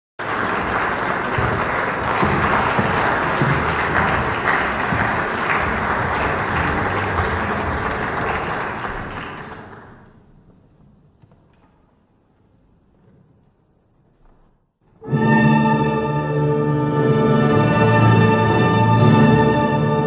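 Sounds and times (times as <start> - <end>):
audience applauding: 0.2 - 10.2.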